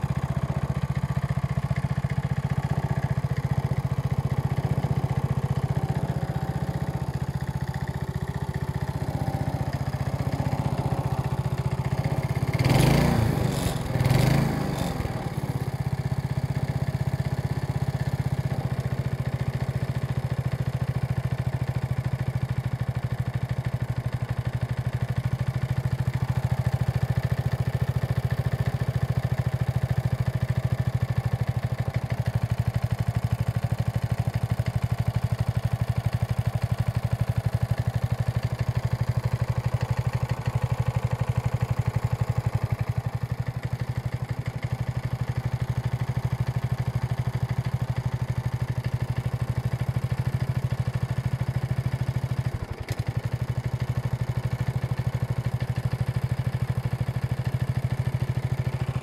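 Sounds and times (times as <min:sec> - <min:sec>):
lawn mower engine idling: 0:00.0 - 0:59.0.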